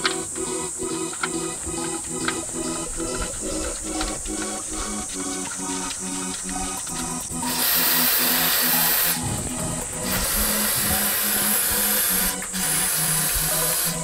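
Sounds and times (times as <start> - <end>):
background music with stepped notes: 0.0 - 14.0
aerosol spray can hissing: 4.9 - 14.0.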